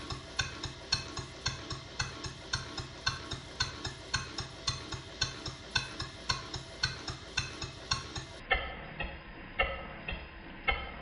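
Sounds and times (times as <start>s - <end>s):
model steam engine exhaust puffs: 0.0s - 8.4s.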